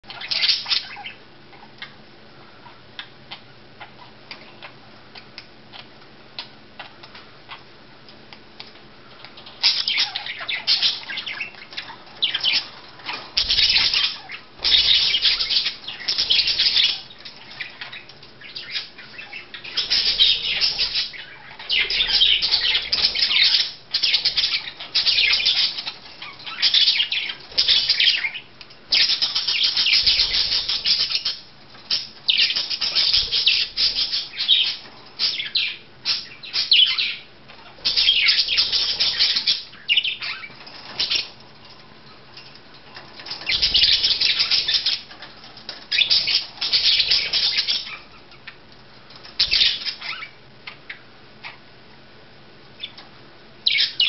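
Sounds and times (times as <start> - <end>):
budgerigars chattering and squawking: 0.0 - 1.9, 9.2 - 41.4, 42.9 - 48.6, 49.2 - 51.6, 52.8 - 54.0.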